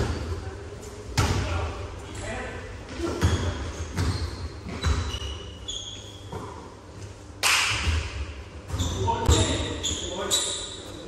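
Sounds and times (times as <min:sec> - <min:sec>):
sneaker squeaks: 0:02.9 - 0:07.0, 0:07.7 - 0:11.0
basketball bouncing on gym floor: 0:03.0 - 0:05.2, 0:07.7 - 0:09.7.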